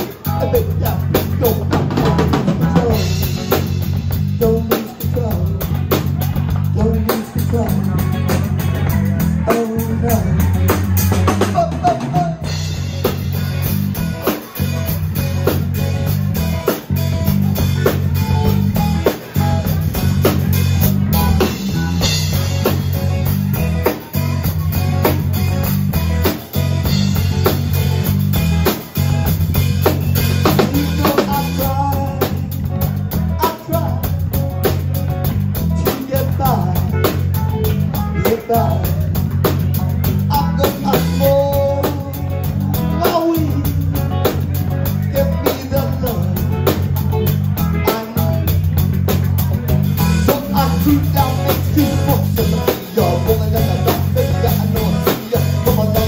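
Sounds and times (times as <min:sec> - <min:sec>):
drum kit beat: 0:00.0 - 0:56.0
electric bass: 0:00.0 - 0:56.0.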